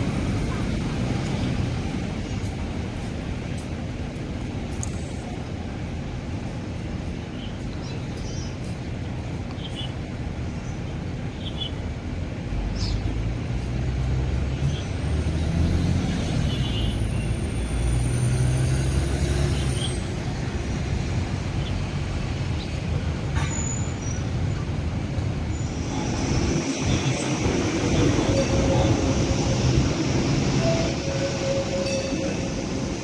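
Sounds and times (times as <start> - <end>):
low rumble of road traffic: 0.0 - 33.0.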